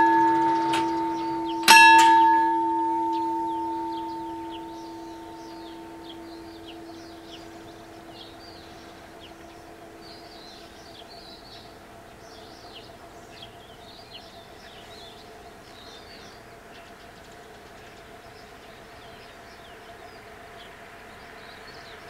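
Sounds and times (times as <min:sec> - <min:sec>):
level crossing bells ringing: 0:00.0 - 0:10.5
faint steady hum: 0:00.0 - 0:22.0
small birds chirping: 0:00.0 - 0:22.0.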